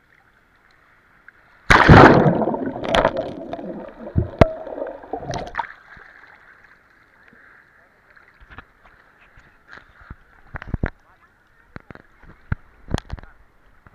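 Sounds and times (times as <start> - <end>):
loud splash: 1.7 - 5.8
churning gurgling water: 1.7 - 6.1.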